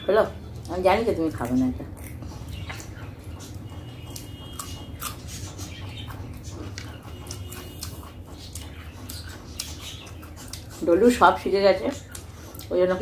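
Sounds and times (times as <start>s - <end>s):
wet chewing clicks and smacks: 0.4s - 13.0s.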